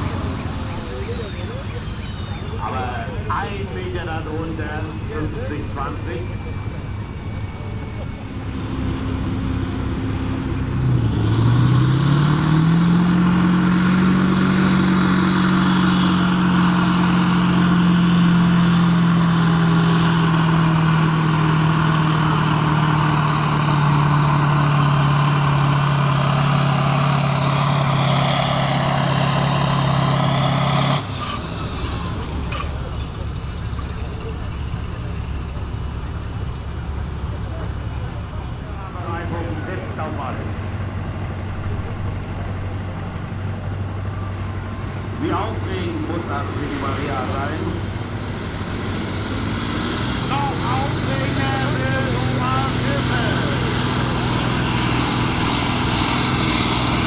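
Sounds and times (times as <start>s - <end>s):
tractor diesel engine at full power: 0.0s - 57.0s.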